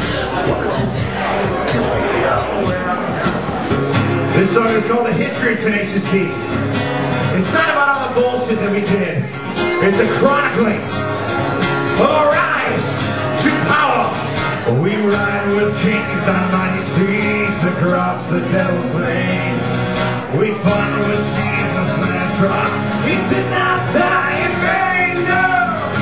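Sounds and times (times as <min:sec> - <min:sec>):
acoustic guitar strumming: 0:00.0 - 0:26.0
man singing: 0:04.3 - 0:11.0, 0:11.9 - 0:26.0.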